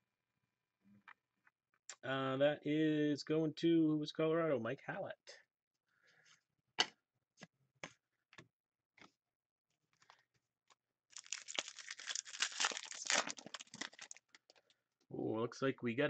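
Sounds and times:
foil pack crinkling and tearing: 0:11.1 - 0:14.6
cards and packaging clicking: 0:11.2 - 0:14.6.

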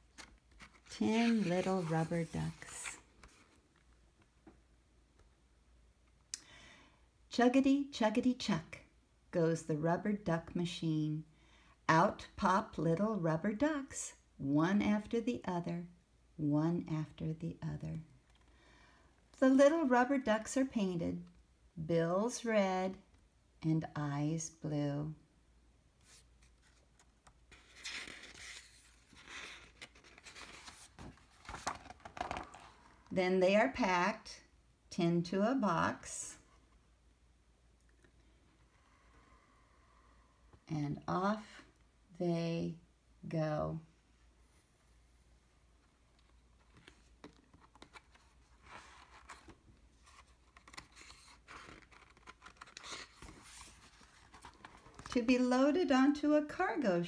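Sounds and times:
book pages rustling: 0:00.0 - 0:04.0, 0:26.0 - 0:33.1, 0:46.2 - 0:55.2.

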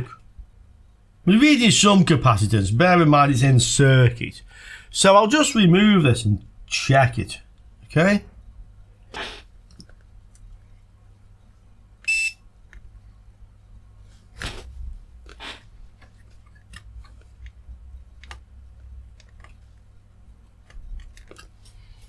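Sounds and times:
low steady hum: 0:00.0 - 0:22.0
electronic beep: 0:12.1 - 0:12.4.

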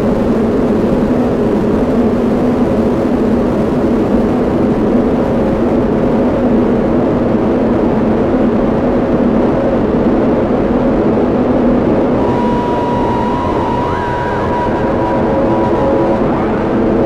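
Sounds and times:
ambient drone music: 0:12.1 - 0:17.0.

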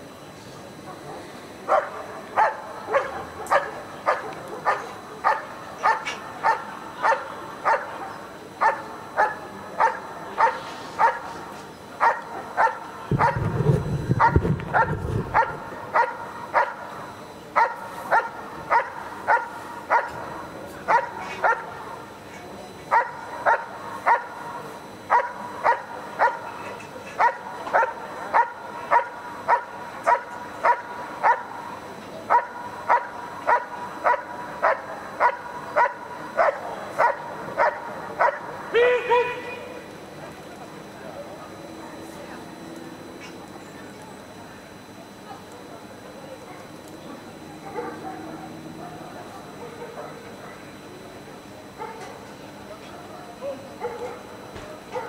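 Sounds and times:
dog barking: 0:01.0 - 0:11.3, 0:12.0 - 0:13.4, 0:14.2 - 0:16.9, 0:17.6 - 0:20.2, 0:20.9 - 0:21.8, 0:22.9 - 0:24.4, 0:25.1 - 0:26.5, 0:27.2 - 0:31.6, 0:32.3 - 0:38.5, 0:47.6 - 0:50.2, 0:51.8 - 0:52.2, 0:53.2 - 0:54.3
low rumble: 0:13.1 - 0:15.8.

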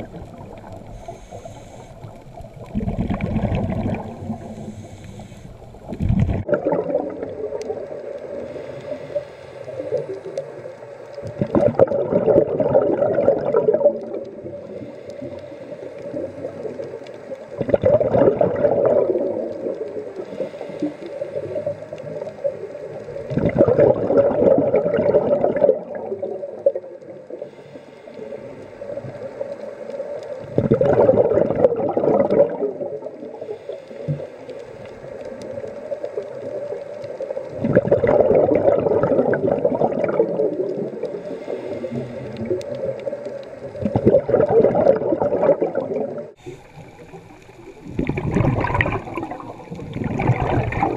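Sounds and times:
diver exhaling bubbles underwater: 0:00.0 - 0:08.0, 0:11.2 - 0:14.8, 0:17.5 - 0:22.3, 0:23.2 - 0:27.5, 0:30.4 - 0:34.2, 0:37.5 - 0:50.9
regulator breathing hiss: 0:00.8 - 0:02.5, 0:04.2 - 0:06.0, 0:08.3 - 0:10.6, 0:14.6 - 0:16.8, 0:20.1 - 0:21.7, 0:27.4 - 0:30.2, 0:33.2 - 0:34.9, 0:41.2 - 0:42.4, 0:46.4 - 0:47.9.

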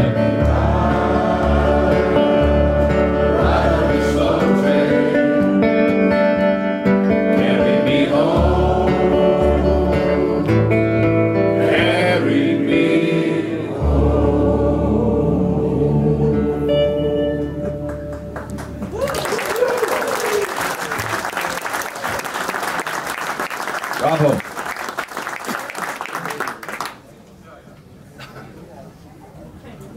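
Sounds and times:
audience singing along: 0:00.0 - 0:06.0, 0:07.1 - 0:17.2
acoustic guitar blues: 0:00.0 - 0:12.9.

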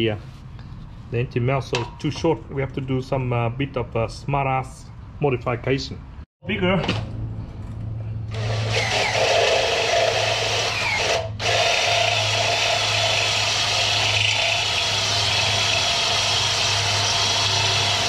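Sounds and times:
electric drill boring metal: 0:08.3 - 0:18.0.

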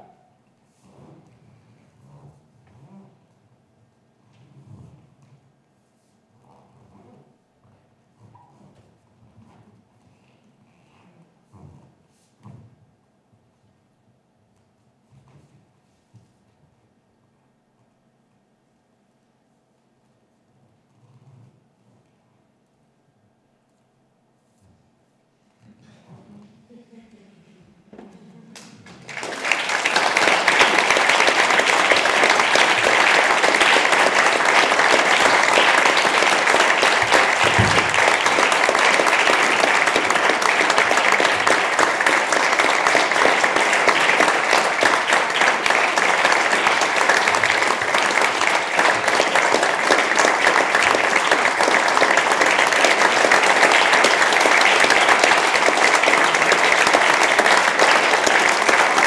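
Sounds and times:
audience applauding: 0:28.6 - 0:59.0.

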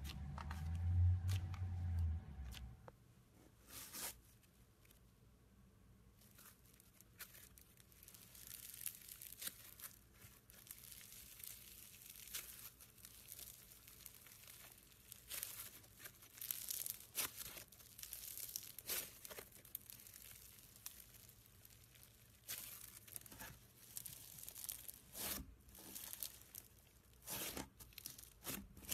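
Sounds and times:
foam-bead slime crackling: 0:06.2 - 0:28.9.

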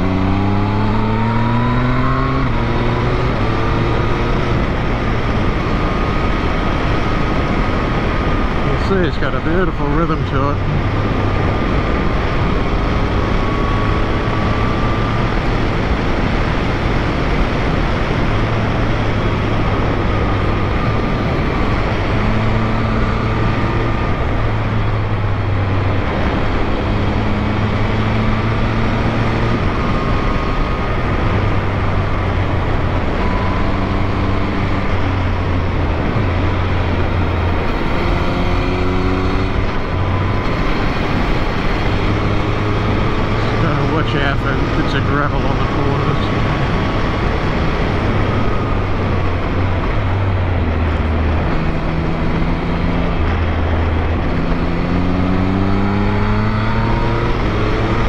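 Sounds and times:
motorcycle engine revving: 0:00.0 - 0:58.0
road noise: 0:00.0 - 0:58.0.

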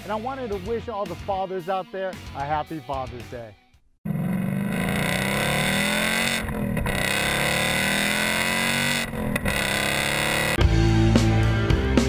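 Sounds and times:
car engine accelerating: 0:04.1 - 0:10.6.

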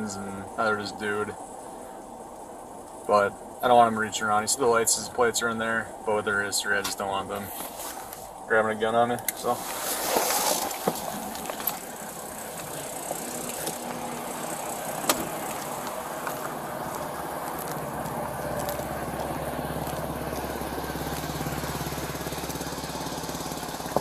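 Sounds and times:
car engine idling: 0:09.2 - 0:24.0
clothing rustling and knocks: 0:09.5 - 0:11.9.

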